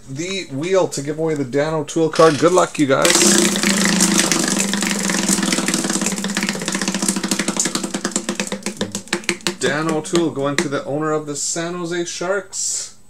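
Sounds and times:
steady hum: 2.1 - 12.2.

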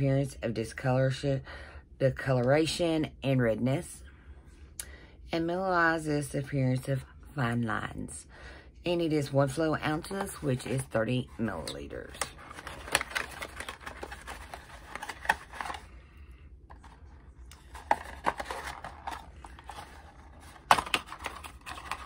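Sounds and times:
cardboard box rustling: 12.4 - 15.9, 16.7 - 22.0.

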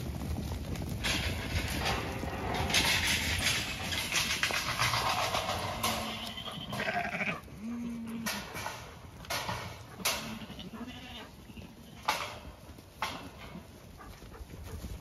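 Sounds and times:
sheep scuffling past: 0.0 - 15.0
sheep bleating low: 6.1 - 8.3.

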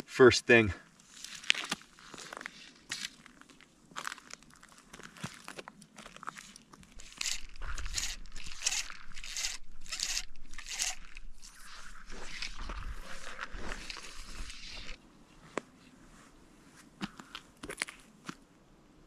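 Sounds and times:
fly line pulled off reel: 7.0 - 15.0.

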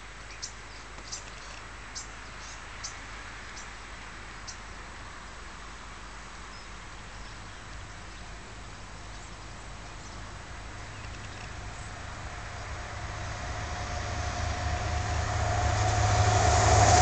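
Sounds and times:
steady background noise: 0.0 - 17.0
approaching train hum: 8.9 - 17.0.

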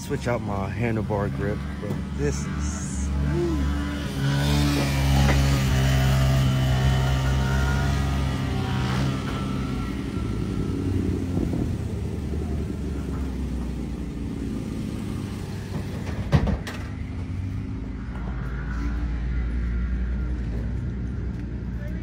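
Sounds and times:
distant motorcycle engines: 0.0 - 22.0
motorcycle engine revving: 1.3 - 16.2.

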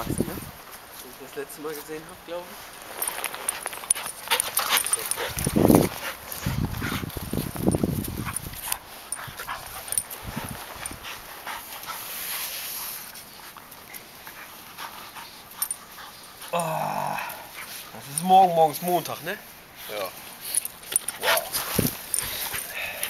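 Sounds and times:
dogs scuffling: 0.0 - 16.5, 19.8 - 22.7
dogs breathing: 2.8 - 18.2, 20.3 - 23.0
small dog vocal sounds: 16.4 - 17.6, 21.1 - 21.8.

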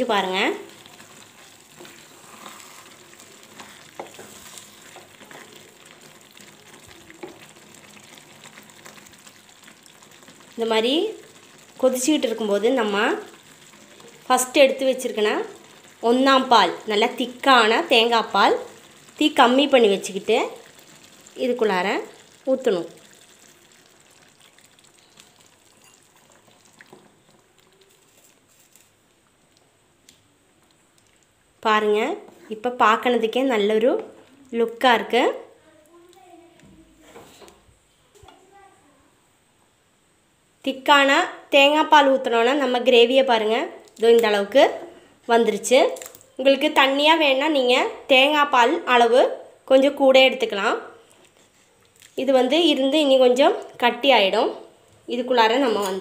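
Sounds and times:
gravy bubbling in a pan: 0.0 - 35.6.

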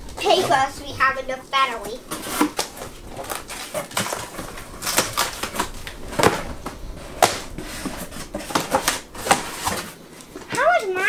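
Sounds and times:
cardboard rustling and knocking: 1.8 - 10.6.

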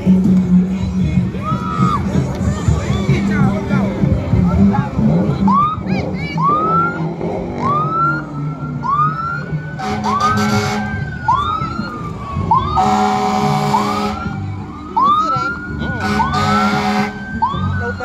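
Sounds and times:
siren wailing: 5.4 - 18.0
siren sweeping up: 5.5 - 18.0
short horn blasts: 9.8 - 10.9, 12.8 - 14.2, 16.0 - 17.2.

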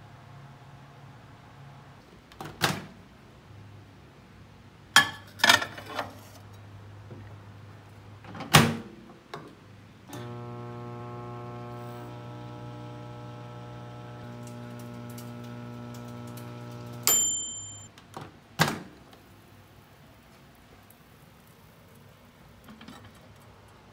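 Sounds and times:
microwave oven humming: 10.1 - 17.9.

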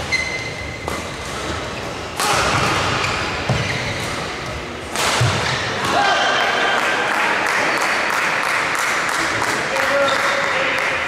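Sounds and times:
shoes squeaking on court: 0.0 - 4.6.

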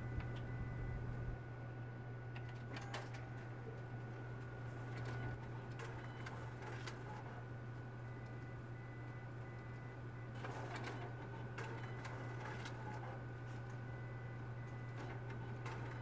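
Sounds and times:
copier hum: 0.0 - 16.0
printer clicks and rustles: 2.4 - 7.4, 10.4 - 13.8, 14.7 - 16.0.

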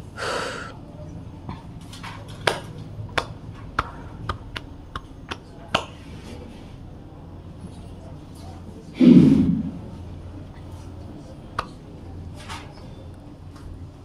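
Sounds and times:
steady low hum: 6.4 - 12.4.

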